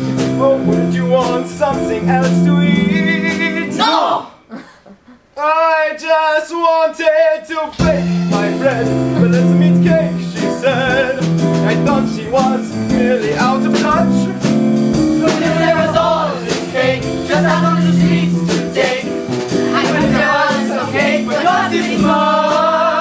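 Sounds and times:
band music led by keyboard: 0.0s - 4.2s, 7.8s - 23.0s
voices singing: 15.2s - 23.0s.

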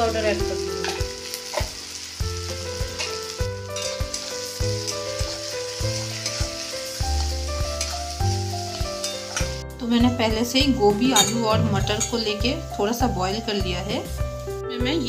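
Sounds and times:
vegetables sizzling in oil: 0.0s - 15.0s
background music with bass: 7.4s - 13.3s.

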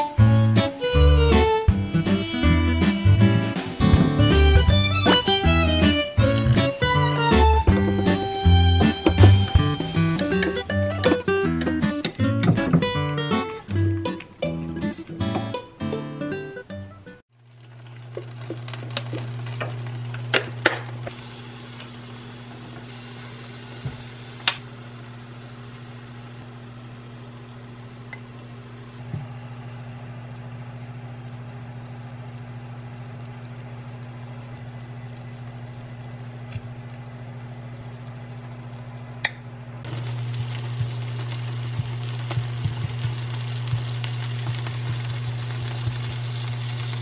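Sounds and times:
food sizzling in a pan: 21.1s - 28.9s, 39.9s - 47.0s.

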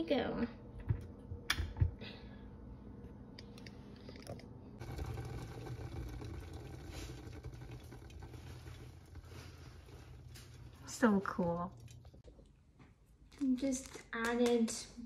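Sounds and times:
kettle water coming to boil: 4.8s - 12.2s.

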